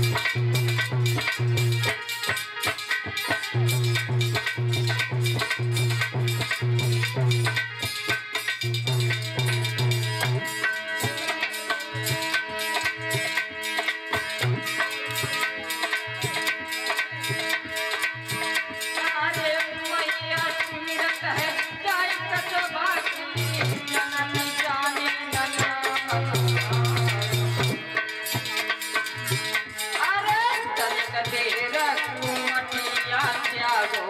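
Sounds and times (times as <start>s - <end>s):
hand drum beat: 0.0s - 16.6s, 18.3s - 32.5s
man singing: 19.2s - 27.7s.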